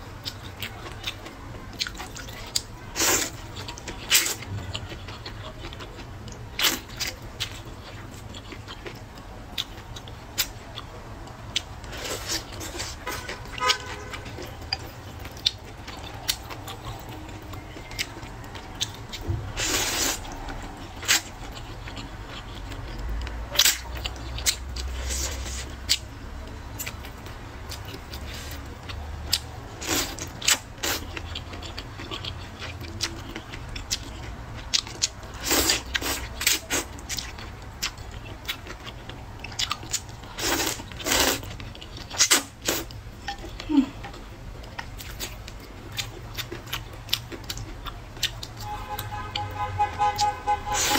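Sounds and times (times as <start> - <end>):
wet chewing: 0.2 - 49.5
noodles slurped: 19.6 - 21.3, 35.4 - 37.0, 39.8 - 42.9.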